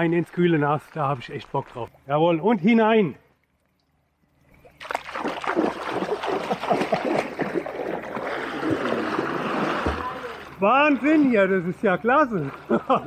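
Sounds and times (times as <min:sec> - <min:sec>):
water splashing and churning: 0:03.2 - 0:13.0.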